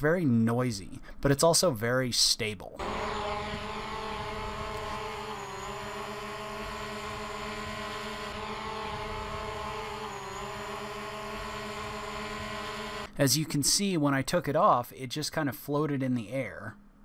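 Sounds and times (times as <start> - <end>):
drone propeller whine: 2.8 - 13.1.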